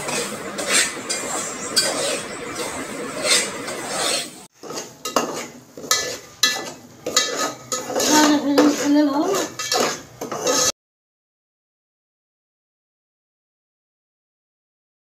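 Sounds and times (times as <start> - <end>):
metal spoon scraping steel pot: 0.0 - 10.8.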